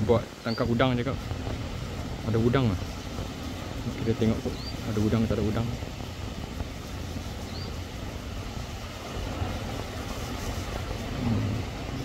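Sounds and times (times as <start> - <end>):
faint surf: 0.0 - 12.0
wind buffeting microphone: 0.0 - 12.0.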